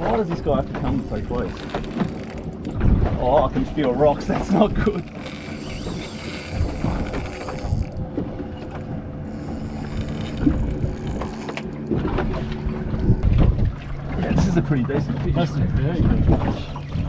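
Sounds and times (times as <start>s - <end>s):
low engine hum: 0.0s - 17.0s
fishing reel being cranked: 0.8s - 2.8s, 4.2s - 8.0s, 8.6s - 11.9s.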